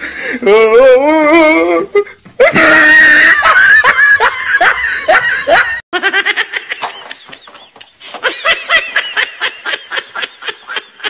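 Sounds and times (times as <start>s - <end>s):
person giggling: 2.4s - 11.0s.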